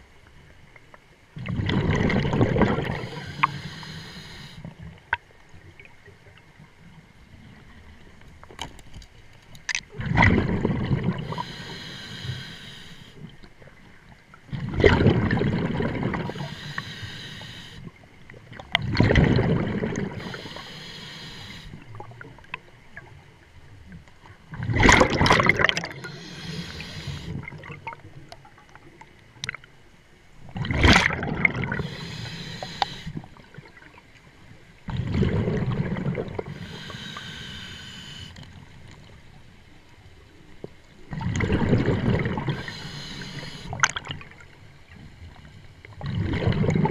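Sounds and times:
exhaled bubbles rushing: 1.4s - 3.3s, 9.9s - 11.4s, 14.5s - 16.5s, 18.5s - 20.3s, 24.6s - 26.3s, 30.6s - 32.0s, 34.9s - 36.5s, 41.1s - 42.7s, 46.0s - 46.9s
regulator inhale hiss: 2.9s - 4.8s, 11.2s - 13.3s, 16.2s - 17.9s, 20.2s - 21.8s, 25.9s - 27.4s, 31.8s - 33.2s, 36.5s - 38.4s, 42.5s - 43.8s.

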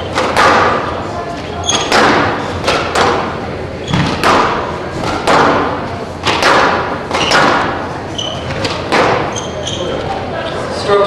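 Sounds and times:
squash ball hits ringing: 0.0s - 1.0s, 1.6s - 9.6s
shoes squeaking on court floor: 0.9s - 2.6s, 3.8s - 4.2s, 7.1s - 10.4s.

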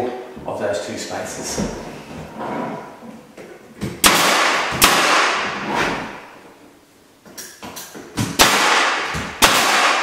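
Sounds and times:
nail gun shots with hiss: 4.0s - 5.5s, 8.2s - 10.0s.

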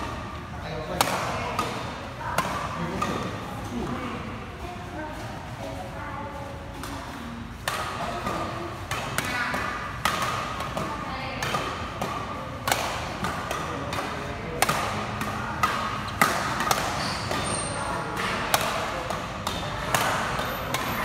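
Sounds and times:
rackets hitting shuttlecock: 0.9s - 3.5s, 6.8s - 21.0s.

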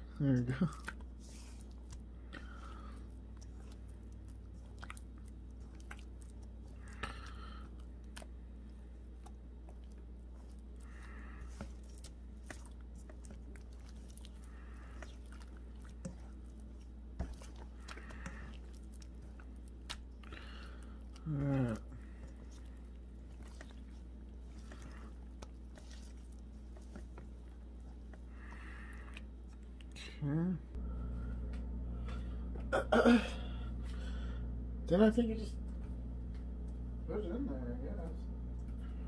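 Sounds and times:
wet squelches of kneading meat: 0.0s - 30.4s
low steady hum: 0.0s - 39.0s.

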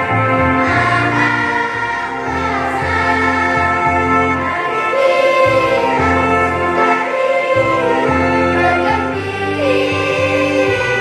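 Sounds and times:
children's choir singing a hymn: 0.0s - 11.0s
electronic keyboard chords: 0.0s - 11.0s.

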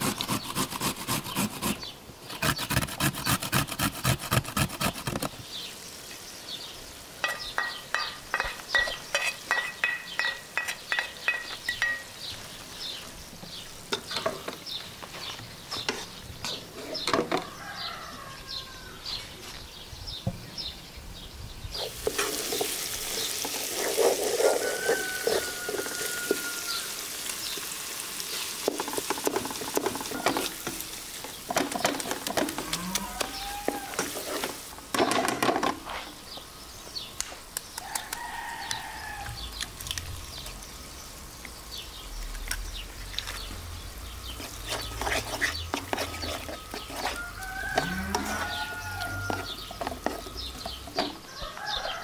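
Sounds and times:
loud sizzling hiss: 4.7s - 16.8s, 20.8s - 35.2s, 35.8s - 51.3s
vegetables frying in a pot: 5.3s - 14.9s, 21.7s - 35.8s, 37.6s - 51.2s
wooden spoon scraping a pot: 15.8s - 17.4s, 21.8s - 26.9s, 28.6s - 36.2s, 44.3s - 51.2s.

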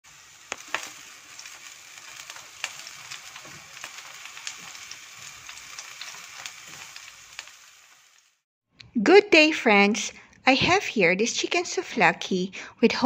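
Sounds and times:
skewers sizzling in an oven: 0.0s - 8.5s
sharp crackling pops: 0.3s - 7.6s.

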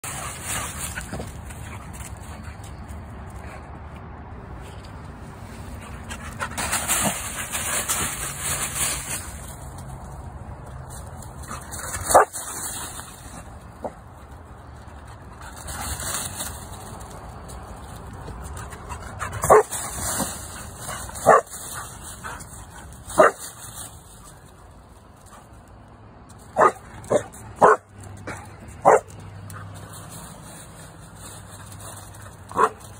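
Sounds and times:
rustling through dry leaves: 0.0s - 2.7s, 5.1s - 25.7s, 28.6s - 32.9s
dog barking: 12.1s - 12.3s, 19.5s - 19.7s, 21.2s - 21.5s, 23.2s - 23.4s, 26.6s - 27.8s, 28.8s - 29.1s, 32.5s - 32.8s.

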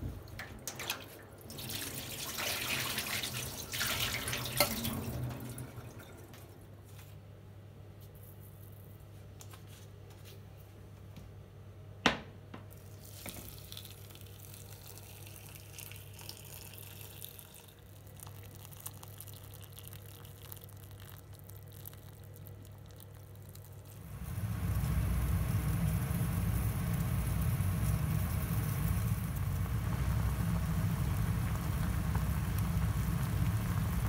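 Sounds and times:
water pouring into a metal pot: 0.2s - 6.5s, 12.8s - 34.0s
steady low hum: 23.7s - 34.0s.

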